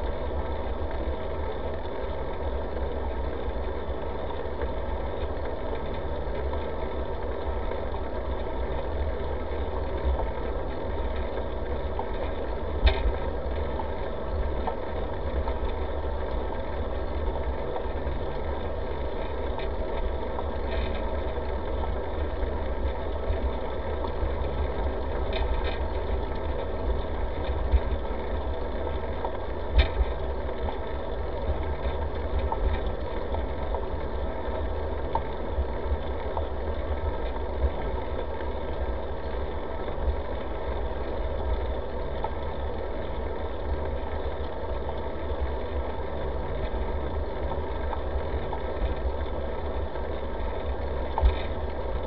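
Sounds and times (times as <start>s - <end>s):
bicycle tyres rolling on asphalt: 0.0s - 52.0s.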